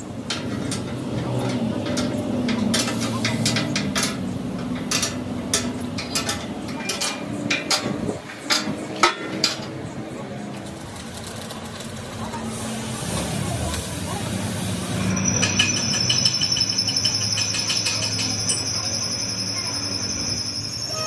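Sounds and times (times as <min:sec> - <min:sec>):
spanner clinking on metal: 0:00.2 - 0:09.8, 0:15.1 - 0:21.0.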